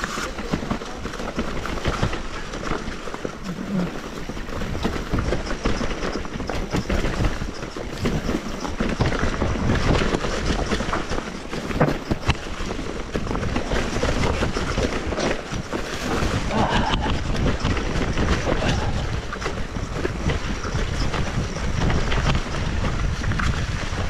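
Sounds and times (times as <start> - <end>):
bike rattling: 0.0 - 24.0
bike tyres rumbling on dirt: 0.0 - 24.0
bike knocking over bumps: 0.1 - 23.7.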